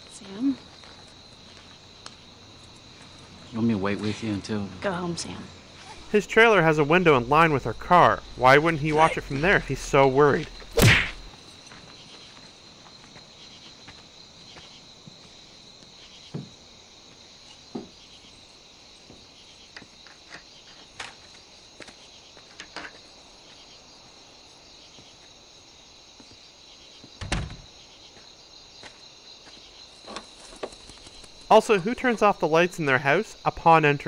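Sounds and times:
crickets chirping: 0.0s - 34.0s.

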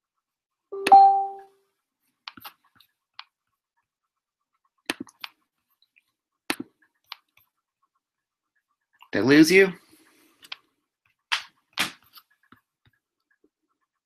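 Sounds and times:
short beep: 0.8s - 1.5s
mouse and keyboard clicks: 4.8s - 5.4s.

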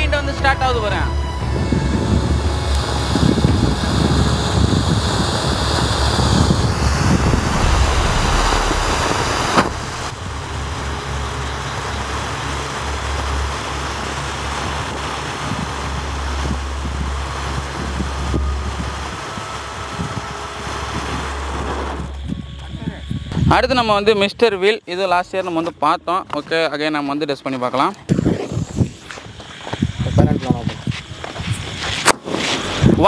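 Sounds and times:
firework fountain hissing: 2.2s - 22.2s, 28.2s - 33.0s.

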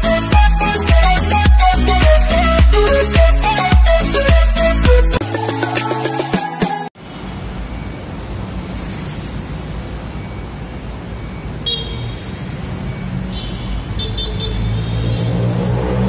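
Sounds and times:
passing vehicles rumble: 7.0s - 16.0s
vehicle engine: 7.0s - 16.0s
car horn beeps: 11.4s - 12.4s, 13.0s - 15.4s.

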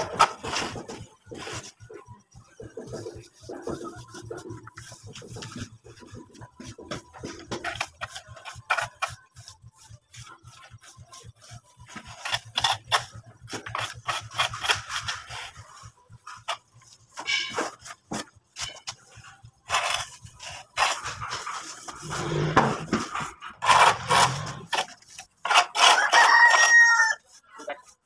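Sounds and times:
trowel scraping cement render: 0.0s - 28.0s.

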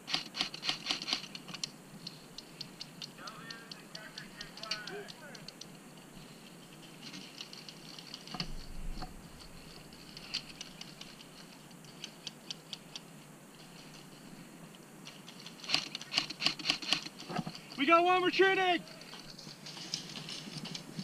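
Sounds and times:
airsoft guns firing: 15.6s - 17.1s.

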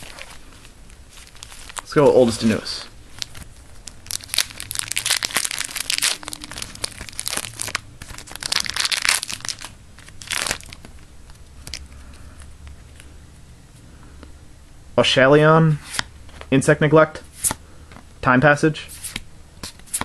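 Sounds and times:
foil wrapper crinkling and tearing: 0.0s - 11.9s.

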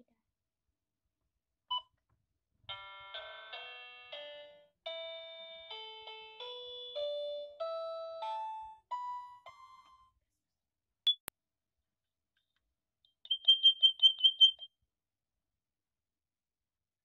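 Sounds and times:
toy keyboard notes: 2.7s - 10.1s, 13.3s - 14.6s.

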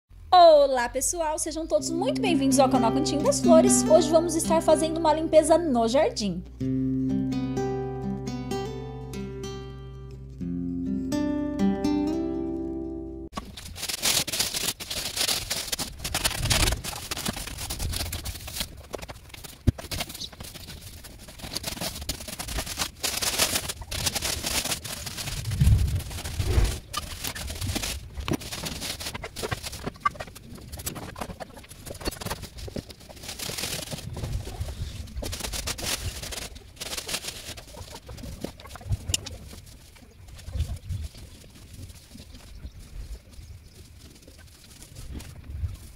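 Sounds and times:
leaves raked over dirt: 13.4s - 19.0s, 20.0s - 29.9s, 31.9s - 45.9s
dull low bumps: 25.3s - 27.0s.

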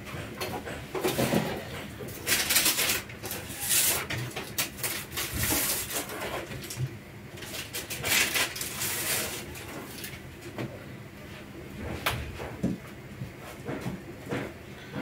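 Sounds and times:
baking paper crinkling: 2.2s - 6.8s, 7.4s - 10.2s.

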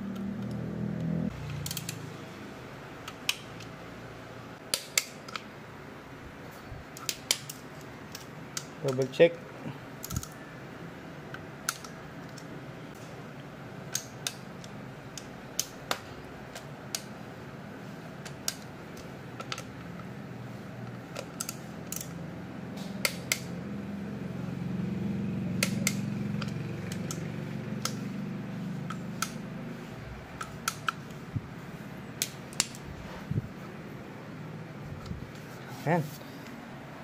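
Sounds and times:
wrench clicking: 1.5s - 2.0s, 21.1s - 22.2s, 25.6s - 28.0s.

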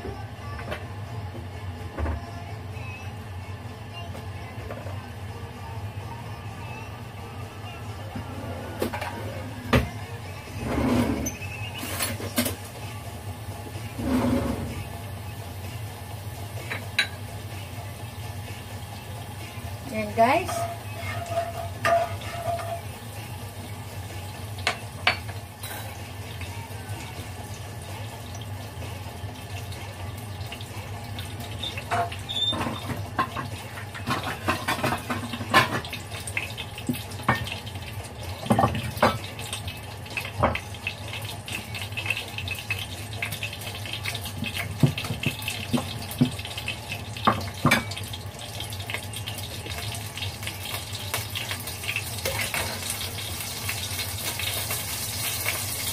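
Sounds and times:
pot and utensils clinking: 16.6s - 17.2s, 20.0s - 22.9s, 24.6s - 26.0s, 31.5s - 37.6s, 38.4s - 48.2s, 51.8s - 55.9s.

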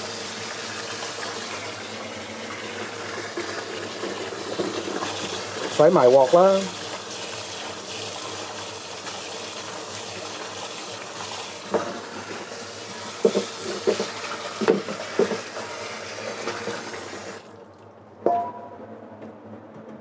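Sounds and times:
tap water running into sink: 0.0s - 17.5s
pot knocking against sink: 13.2s - 15.5s, 18.3s - 18.7s
metallic clank of pot: 18.3s - 18.8s.

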